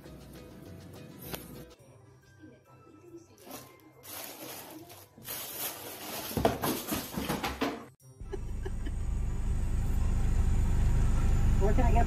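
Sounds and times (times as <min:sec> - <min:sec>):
cat rustling in cardboard box: 0:03.4 - 0:07.3
car engine idling: 0:08.3 - 0:12.0.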